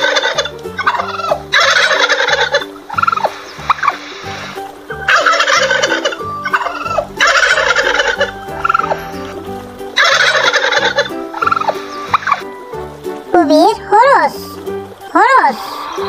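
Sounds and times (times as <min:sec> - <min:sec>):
turkey gobbling: 0:00.0 - 0:12.6.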